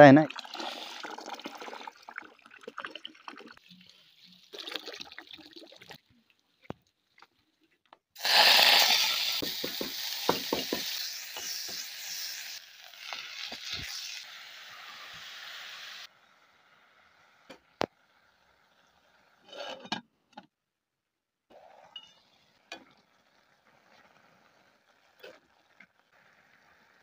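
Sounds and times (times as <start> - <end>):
cooking hiss in hot pot: 0.4 - 2.0, 8.2 - 19.6, 21.5 - 27.0.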